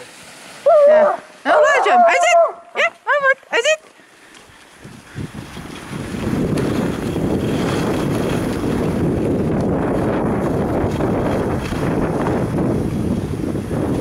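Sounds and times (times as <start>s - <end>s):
wind rushing over microphone: 4.5s - 14.0s.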